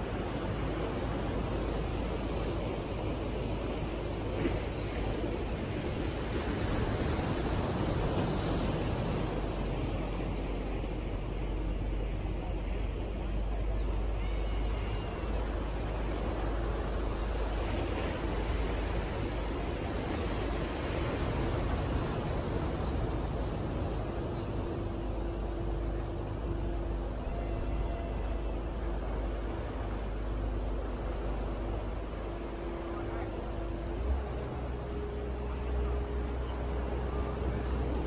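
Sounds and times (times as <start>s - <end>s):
distant surf: 0.0s - 38.0s
wind: 0.0s - 38.0s.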